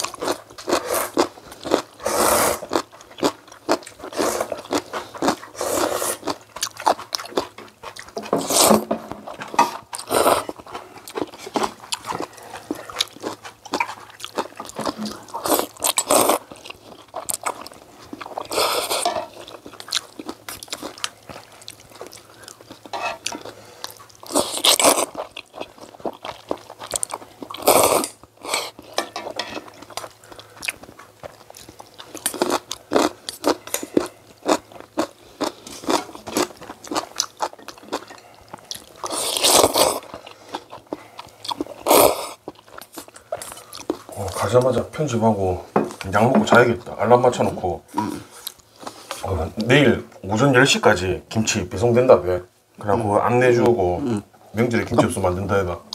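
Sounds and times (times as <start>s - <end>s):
chewing: 0.0s - 8.7s, 9.3s - 44.7s.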